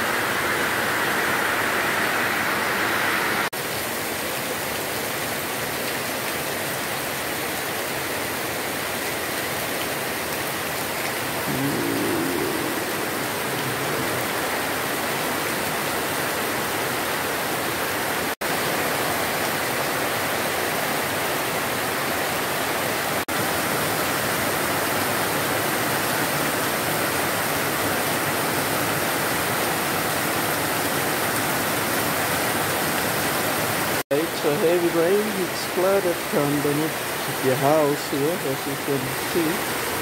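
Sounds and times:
heavy rain on ground: 0.0s - 40.0s.

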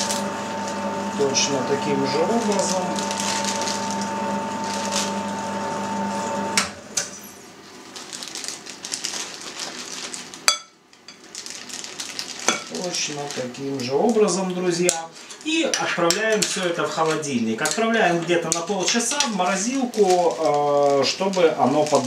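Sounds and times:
plastic bag rustling: 0.0s - 5.9s, 7.5s - 22.0s
meat grinder motor humming: 0.0s - 7.0s.

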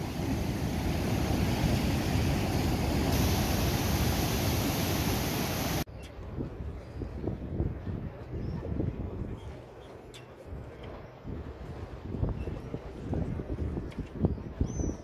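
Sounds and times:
sea waves breaking: 0.0s - 5.9s
strong wind: 0.0s - 9.7s, 10.5s - 15.0s
wind rumble on microphone: 0.0s - 15.0s.

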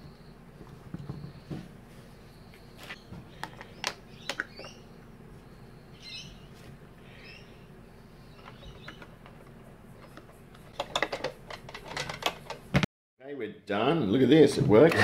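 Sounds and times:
faint bird chirps: 0.0s - 9.2s.

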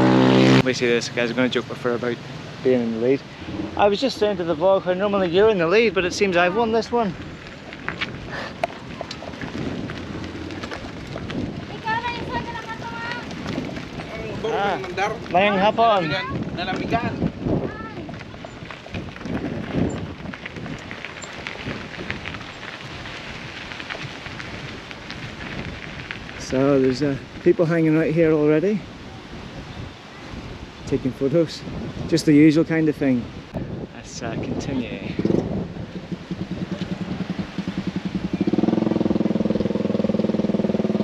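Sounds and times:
wind buffeting microphone: 0.0s - 41.0s
tyres crunching on gravel: 0.6s - 28.7s
small motorcycle engine running: 35.4s - 41.0s.

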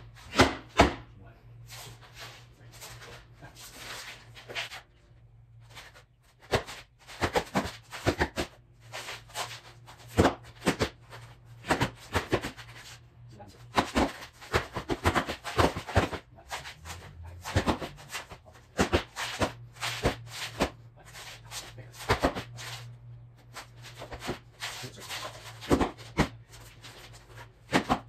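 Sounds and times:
low hum: 1.0s - 7.1s
sneakers stamping on concrete: 23.5s - 28.0s.

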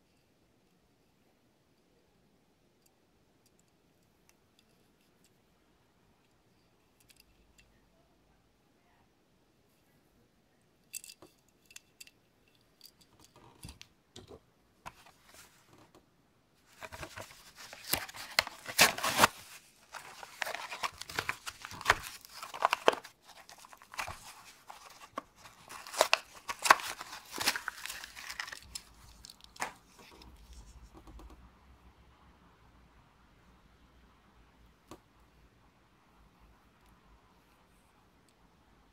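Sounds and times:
plastic packaging tearing and crinkling: 16.8s - 29.9s.

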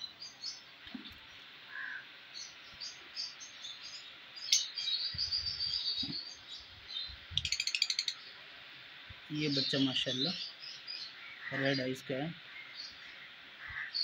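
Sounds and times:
lovebirds chirping: 0.0s - 8.4s, 9.2s - 14.0s.

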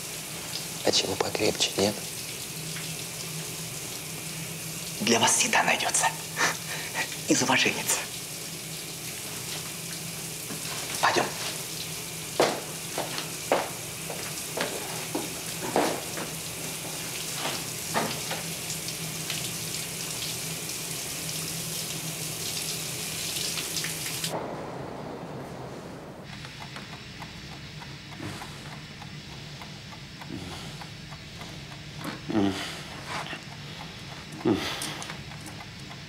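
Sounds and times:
showers spraying water: 0.0s - 27.4s.

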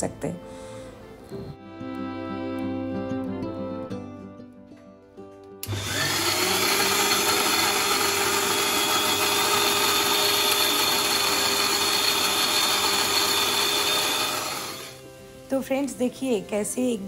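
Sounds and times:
mixer grinder motor blending: 5.6s - 15.0s.

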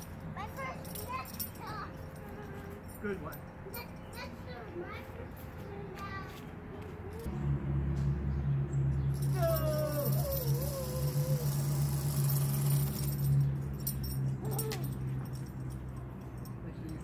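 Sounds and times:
zipline pulleys humming on cable: 8.8s - 17.0s
wavering high cry: 9.2s - 12.3s, 14.4s - 15.0s.

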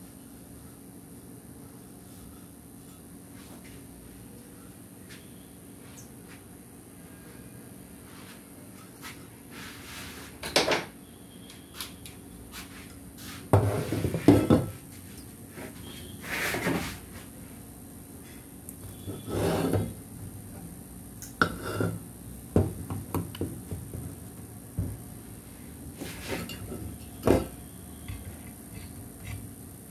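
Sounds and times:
tools knocking on workbench: 13.6s - 14.8s, 22.6s - 24.2s.

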